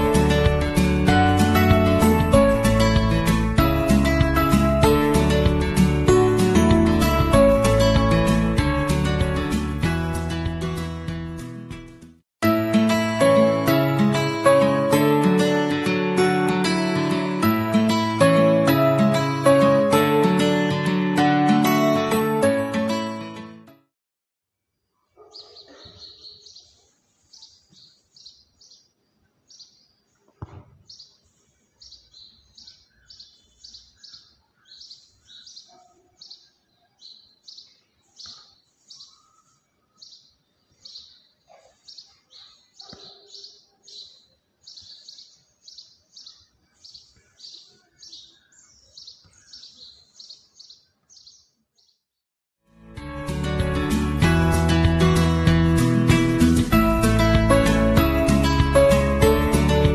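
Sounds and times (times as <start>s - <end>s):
small bird chirping: 25.2s - 52.0s.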